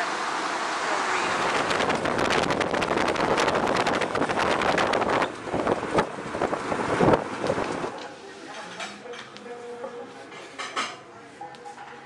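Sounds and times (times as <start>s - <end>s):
wind buffeting microphone: 1.4s - 7.8s.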